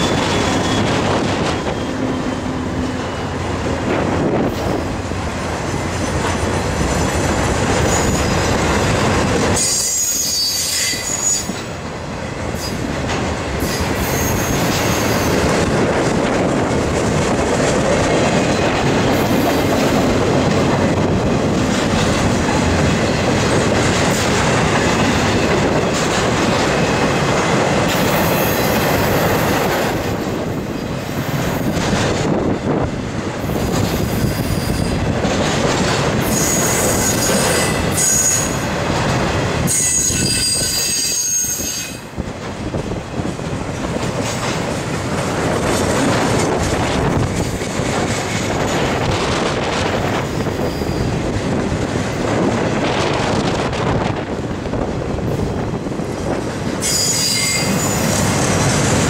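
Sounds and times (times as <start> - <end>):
high wheel squeal: 0.0 - 3.5, 7.8 - 8.6, 9.6 - 11.7, 13.6 - 15.4, 36.2 - 38.6, 39.7 - 42.0, 56.8 - 58.2
train wheels clattering over rails: 0.0 - 59.0.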